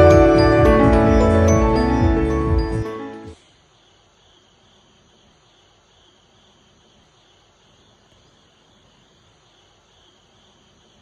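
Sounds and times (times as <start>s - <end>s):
faint insect chirring: 3.4s - 11.0s.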